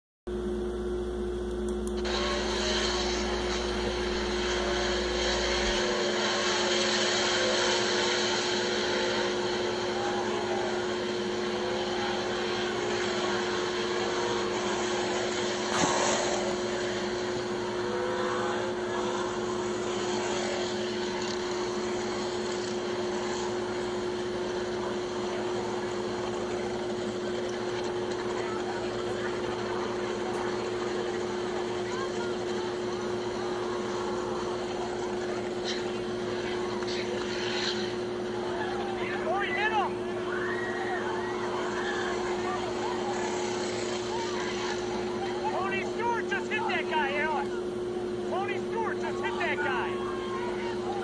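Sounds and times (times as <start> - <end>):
constant electrical hum: 0.3 - 51.0
race car engines through speaker: 2.0 - 51.0.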